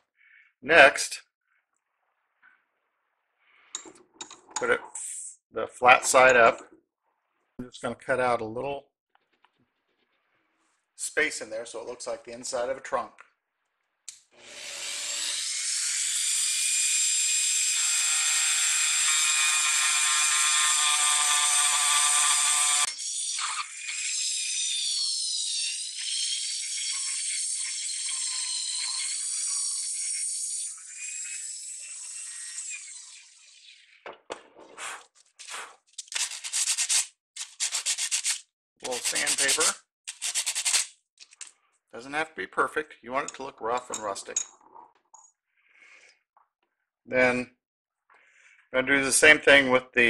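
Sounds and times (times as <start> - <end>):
sandpaper rubbing wood: 34.8 - 41.0.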